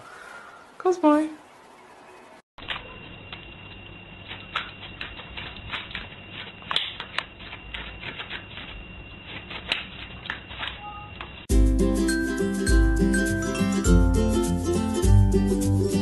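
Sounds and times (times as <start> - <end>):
puppy claws clicking on floor: 4.2 - 10.8.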